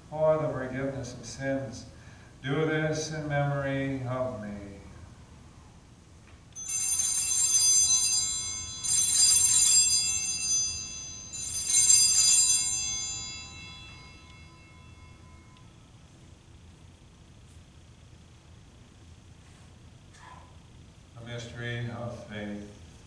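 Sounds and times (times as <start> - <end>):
small bells jingling: 6.6 - 16.0.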